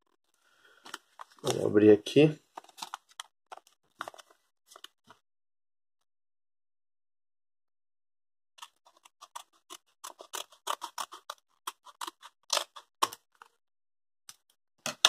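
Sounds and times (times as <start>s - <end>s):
scissors snipping paper: 8.6s - 13.5s.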